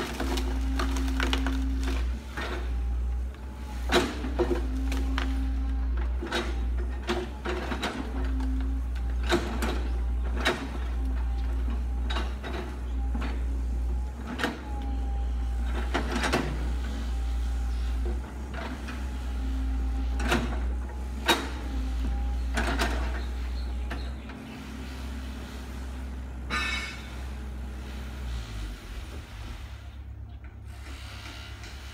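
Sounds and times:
excavator diesel engine running: 0:00.0 - 0:31.9.

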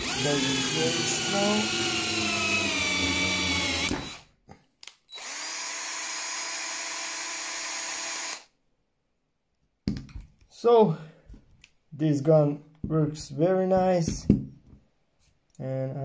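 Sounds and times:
battery drill running: 0:00.0 - 0:04.3, 0:05.1 - 0:08.5.

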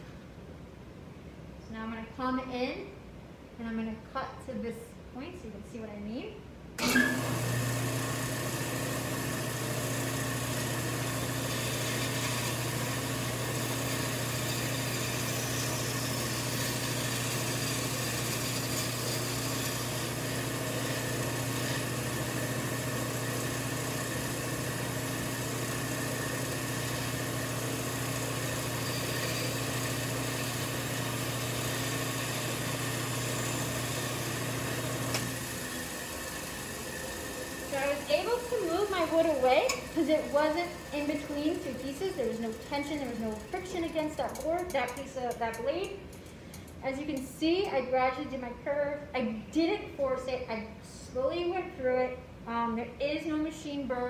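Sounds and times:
band saw motor hum: 0:06.8 - 0:44.7.

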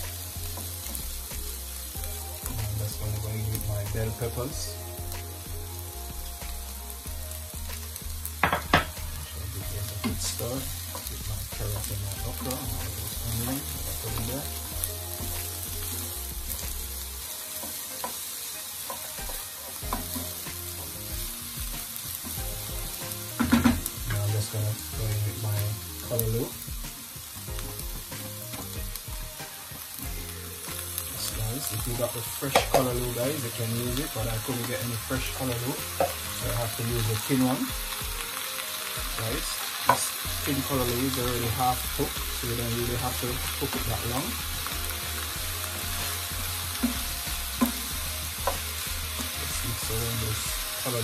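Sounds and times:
vegetables sizzling in a frying pan: 0:00.0 - 0:51.0
wooden spoon knocking on pan: 0:08.4 - 0:09.0, 0:18.9 - 0:20.4, 0:22.3 - 0:24.2.

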